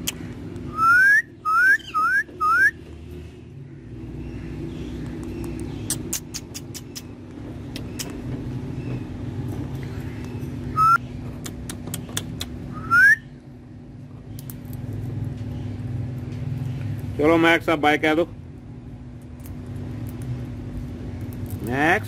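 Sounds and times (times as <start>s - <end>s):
steady low hum: 0.0s - 22.0s
short rising whistles: 0.7s - 2.8s, 10.8s - 11.0s, 12.7s - 13.3s.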